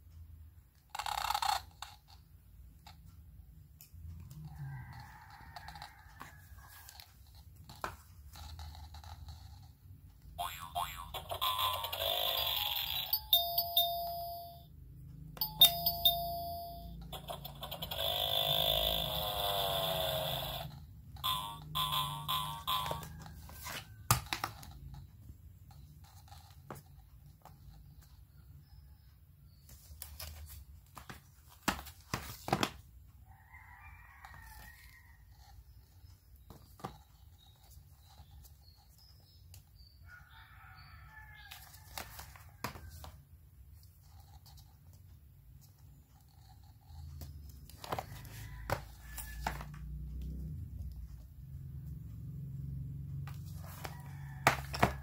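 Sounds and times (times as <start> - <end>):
cardboard books clicking and scraping: 22.6 - 28.2, 29.6 - 39.6, 41.4 - 51.4, 53.2 - 55.0.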